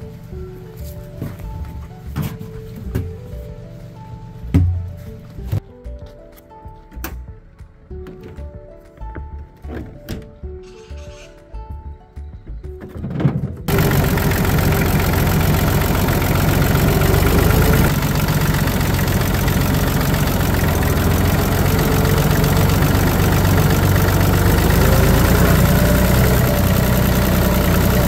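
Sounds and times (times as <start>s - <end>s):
tractor engine running: 13.7s - 28.0s.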